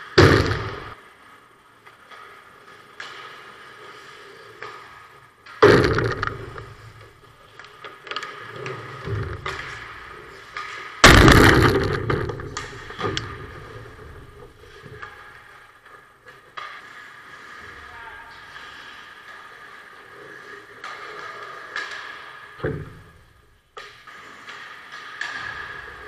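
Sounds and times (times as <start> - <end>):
skates scraping ice: 0.0 - 26.0
loud bangs: 0.2 - 1.0, 11.0 - 13.6.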